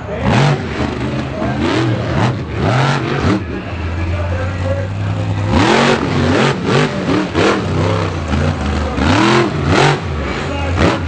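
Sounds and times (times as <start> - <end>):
monster truck engine revving: 0.0 - 11.0.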